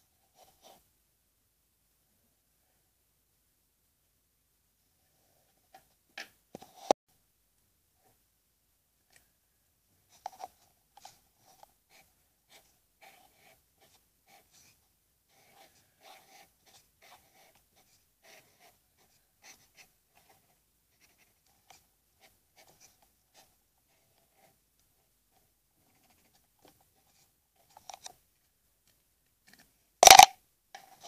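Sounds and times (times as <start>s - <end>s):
marker writing on paper: 10.2s - 20.4s.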